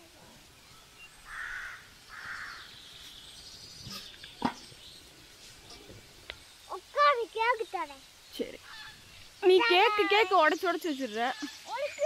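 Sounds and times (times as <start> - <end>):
crow cawing: 1.2 - 2.7, 8.6 - 9.1
faint high bird chirps: 6.3 - 12.0.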